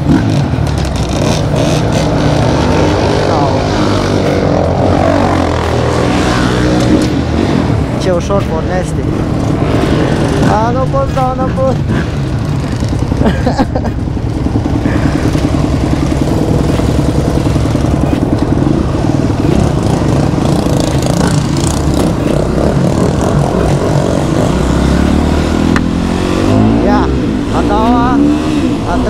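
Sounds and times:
motocross bike engine running: 0:09.0 - 0:29.0.

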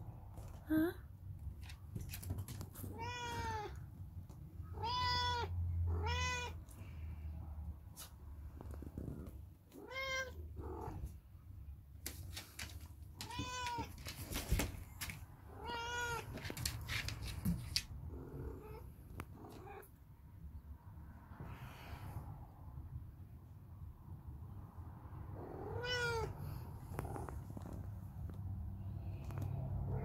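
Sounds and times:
knocks and rustles: 0:01.5 - 0:03.0, 0:12.0 - 0:15.4, 0:16.2 - 0:18.0.

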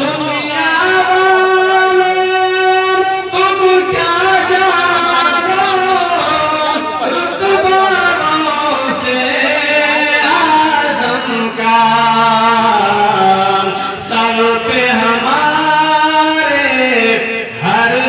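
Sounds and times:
man singing unaccompanied: 0:00.0 - 0:18.0
singer breathing: 0:13.7 - 0:14.0.

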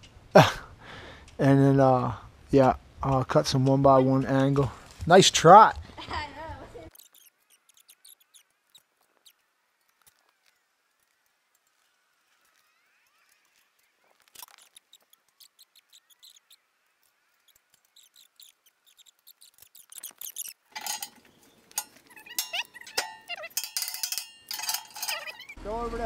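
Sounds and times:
metal clicks and clinks: 0:19.6 - 0:25.6.

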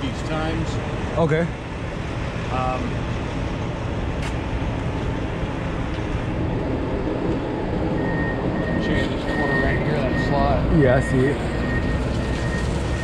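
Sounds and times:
steady high-pitched tone: 0:06.7 - 0:13.0.

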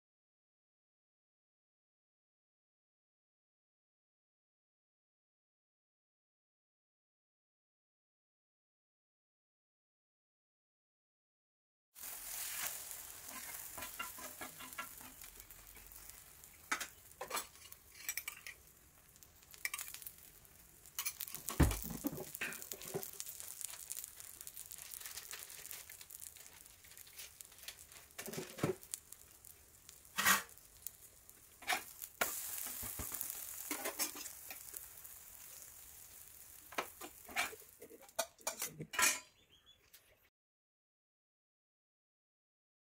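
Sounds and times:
steel spatula scraping pan: 0:12.0 - 0:18.7, 0:20.9 - 0:24.7, 0:29.9 - 0:30.7, 0:31.6 - 0:34.8, 0:37.0 - 0:39.4
omelette sizzling in oil: 0:12.0 - 0:38.6
heavy thud of omelette flipped: 0:21.5 - 0:22.3.

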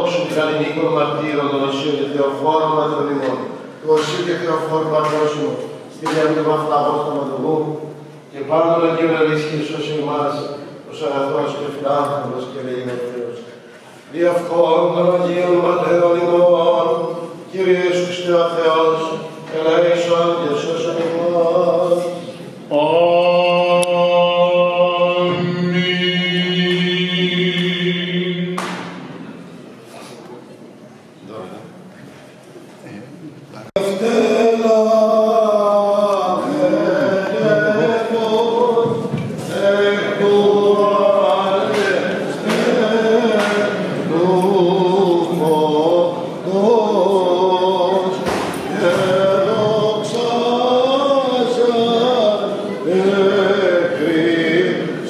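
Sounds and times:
men chanting: 0:14.2 - 0:28.6, 0:33.7 - 0:55.0.

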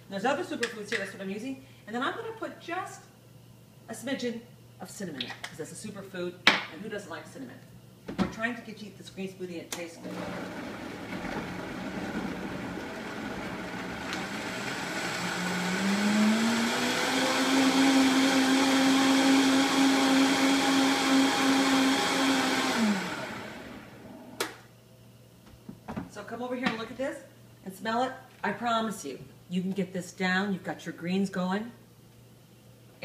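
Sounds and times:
blender running: 0:10.0 - 0:24.4.

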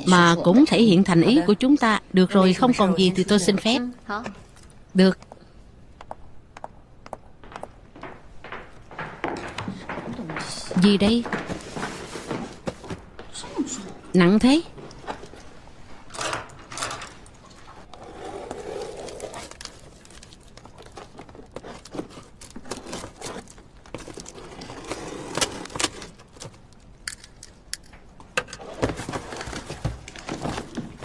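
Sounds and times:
sharp knocks and clicks: 0:06.0 - 0:11.5
packing tape tearing: 0:18.8 - 0:27.5.

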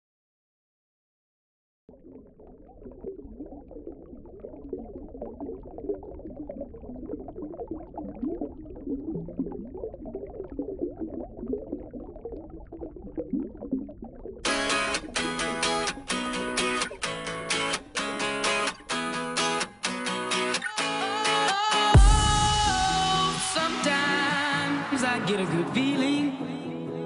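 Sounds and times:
underwater bubbling: 0:01.9 - 0:19.0.

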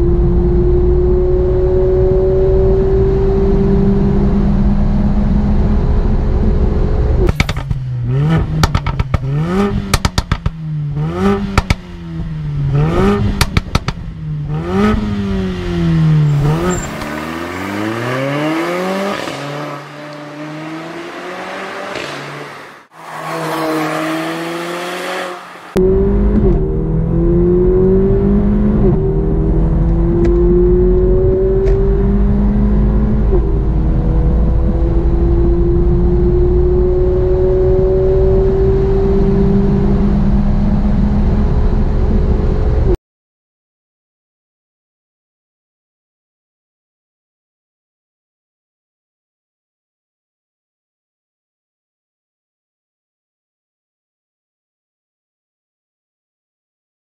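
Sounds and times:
car engine revving: 0:00.0 - 0:43.0
exhaust pops and crackles: 0:07.2 - 0:10.6, 0:11.5 - 0:11.8, 0:13.2 - 0:14.1
car driving past: 0:15.5 - 0:25.8
car accelerating heard from cabin: 0:23.1 - 0:43.0.

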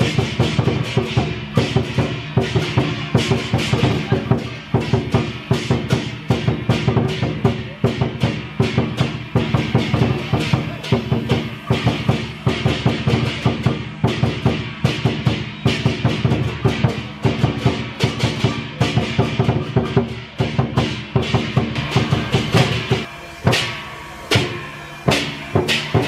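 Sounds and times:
fast driving drum beats: 0:00.0 - 0:26.0
crashing metal strikes: 0:20.7 - 0:26.0.

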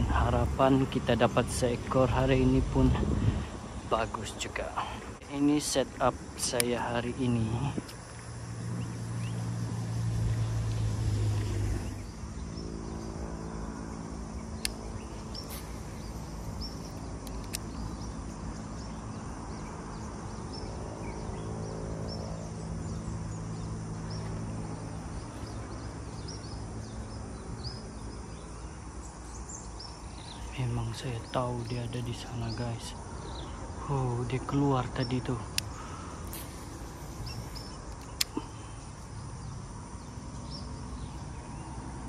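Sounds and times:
small birds chirping: 0:00.0 - 0:42.0
sharp clicks: 0:06.4 - 0:06.9, 0:14.6 - 0:18.1, 0:35.5 - 0:38.4.

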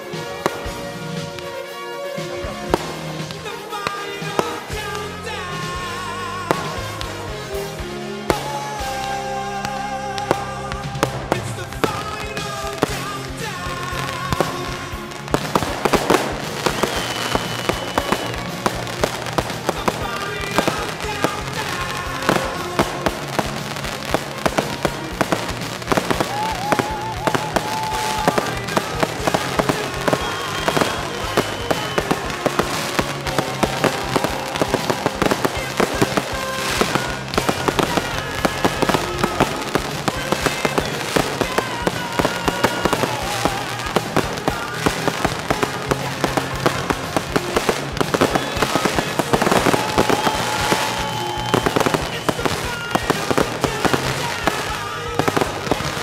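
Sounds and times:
background music: 0:00.0 - 0:56.0
fireworks bangs and crackles: 0:00.0 - 0:56.0.

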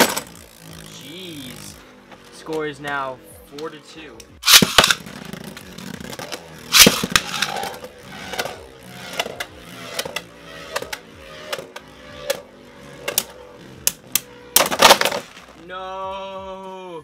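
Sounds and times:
spinning tops whirring: 0:00.0 - 0:03.0, 0:04.3 - 0:15.7
spinning tops clashing: 0:04.4 - 0:12.4.

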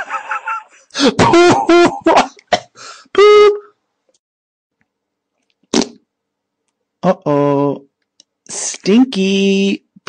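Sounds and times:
person making silly noises: 0:03.1 - 0:03.7.

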